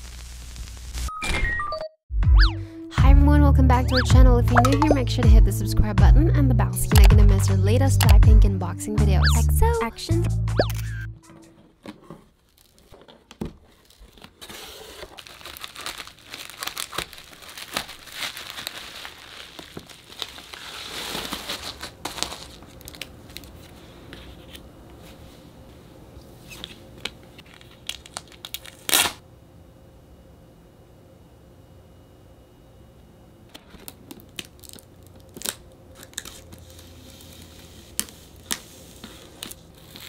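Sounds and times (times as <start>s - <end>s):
plastic crackling: 11.4s - 23.8s, 26.6s - 29.2s, 33.5s - 40.0s
bubble wrap crinkling: 11.6s - 24.6s, 26.5s - 29.2s, 33.6s - 40.0s.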